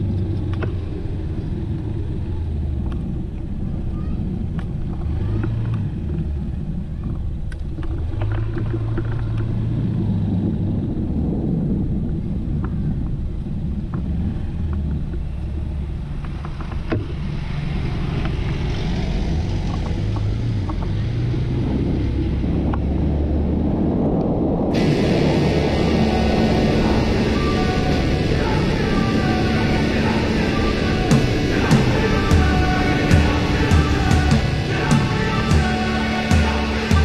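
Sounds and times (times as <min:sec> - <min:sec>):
wind rumble on microphone: 0:00.0 - 0:37.0
scooter engine running: 0:24.7 - 0:37.0.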